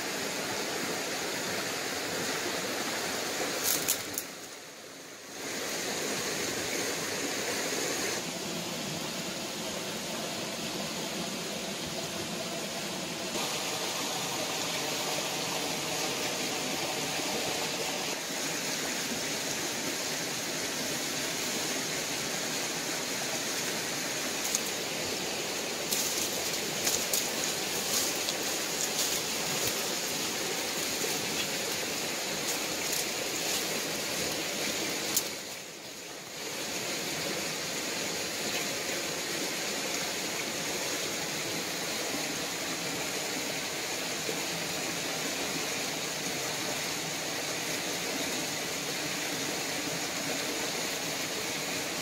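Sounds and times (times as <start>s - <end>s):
twigs and leaves crackling underfoot: 3.6s - 4.5s, 24.4s - 24.8s, 25.8s - 34.4s
steady rushing noise: 20.2s - 35.5s.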